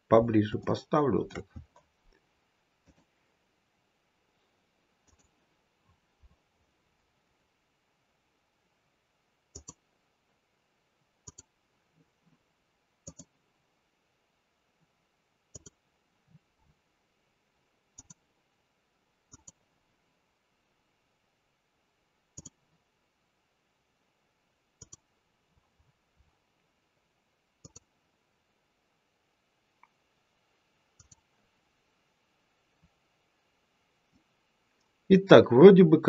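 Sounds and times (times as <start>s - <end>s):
computer mouse clicking: 5.0s - 5.4s, 9.5s - 9.8s, 11.2s - 11.5s, 13.0s - 13.4s, 15.5s - 15.8s, 18.0s - 18.2s, 19.3s - 19.6s, 22.4s - 22.6s, 24.8s - 25.1s, 27.6s - 27.9s, 31.0s - 31.3s.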